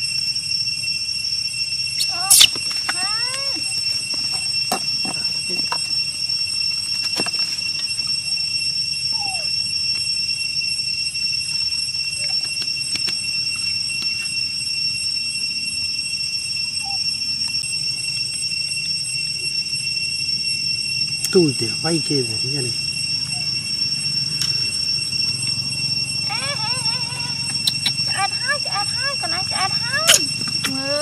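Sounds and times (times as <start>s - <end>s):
high-pitched insect chorus: 0.0s - 31.0s
macaques squeaking: 2.0s - 6.4s, 9.1s - 9.7s, 23.1s - 31.0s.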